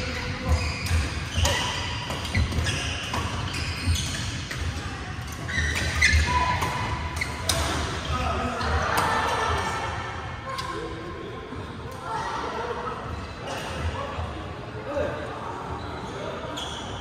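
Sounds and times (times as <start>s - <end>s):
shoe squeaks: 0.0s - 8.8s, 15.8s - 17.0s.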